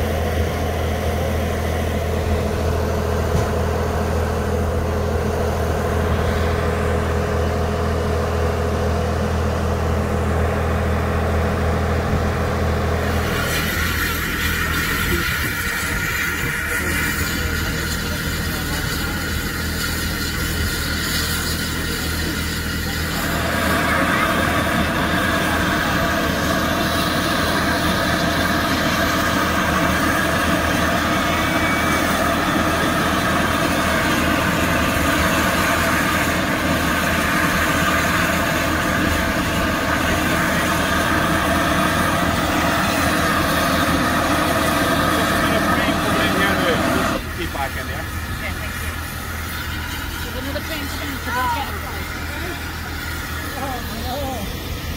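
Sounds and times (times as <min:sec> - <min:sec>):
steam locomotive hissing: 0:00.0 - 0:54.9.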